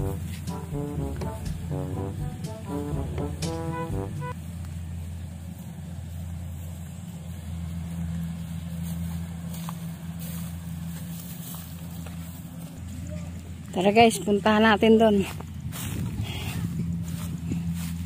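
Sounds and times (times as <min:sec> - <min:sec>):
background music: 0:00.0 - 0:04.4
harvester engine humming: 0:00.0 - 0:18.0.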